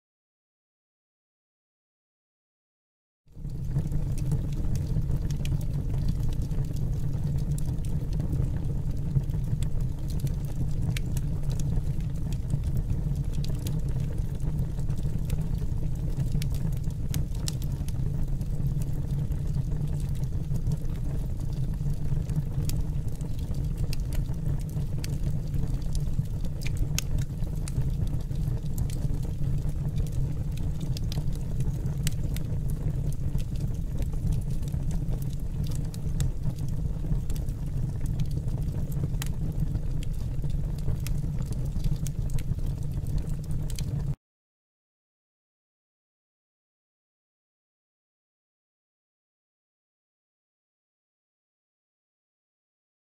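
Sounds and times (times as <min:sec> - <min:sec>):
fire crackles: 0:03.4 - 0:44.2
flame roaring: 0:22.1 - 0:25.9, 0:26.5 - 0:44.0.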